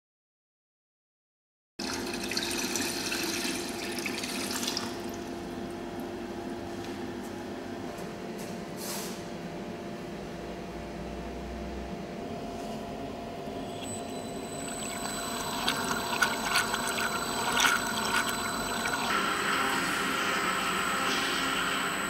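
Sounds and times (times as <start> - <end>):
low machine hum: 1.8 - 22.0
high whine: 13.1 - 22.0
water churning and splashing: 14.6 - 19.2.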